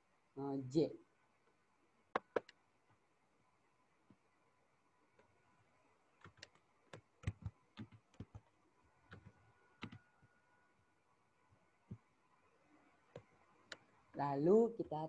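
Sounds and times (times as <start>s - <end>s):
mouse and keyboard clicks: 2.2s - 2.6s, 6.2s - 8.5s.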